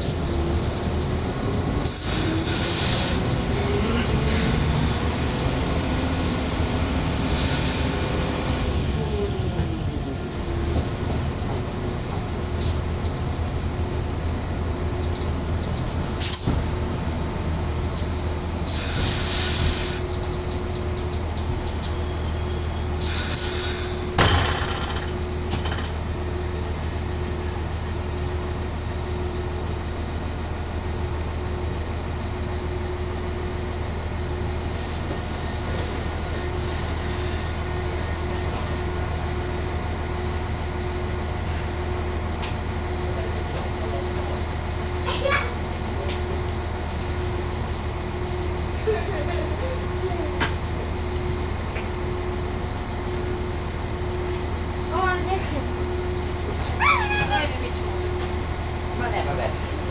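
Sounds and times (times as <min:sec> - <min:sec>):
train rumbling on rails: 0:00.0 - 0:59.9
wheel squeals: 0:01.8 - 0:03.3, 0:16.2 - 0:16.8, 0:18.7 - 0:24.2.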